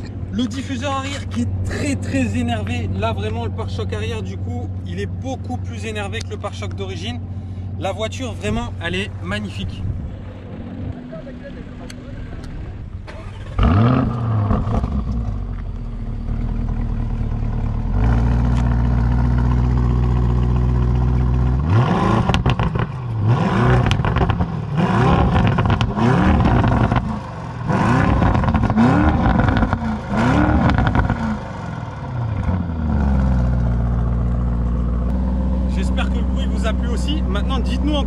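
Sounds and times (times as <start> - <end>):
car engine revving and idling: 0.0 - 38.0.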